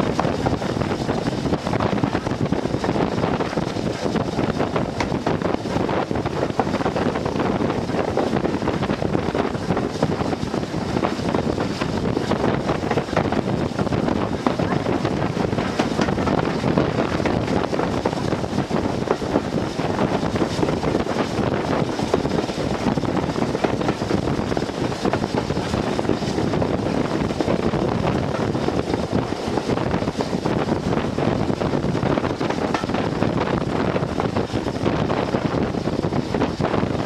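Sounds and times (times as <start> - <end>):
train running on track: 0.0 - 37.0
wind buffeting microphone: 0.0 - 37.0.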